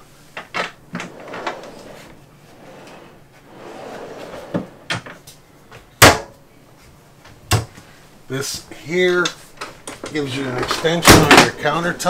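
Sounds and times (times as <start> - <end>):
drawer sliding: 0.9 - 5.0.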